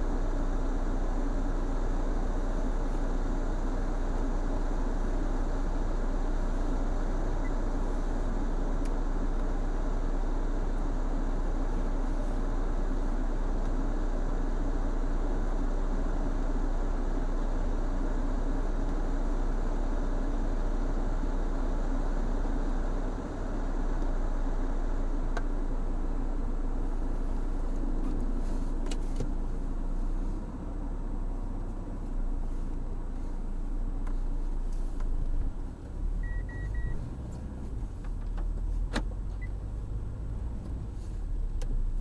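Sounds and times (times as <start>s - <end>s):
car idling hum: 0.0s - 42.0s.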